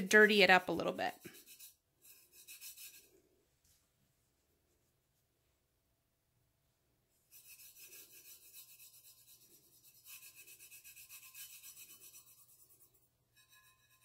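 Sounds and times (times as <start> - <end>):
fingertip rubbing on metal: 0.0 - 3.2, 7.3 - 14.0.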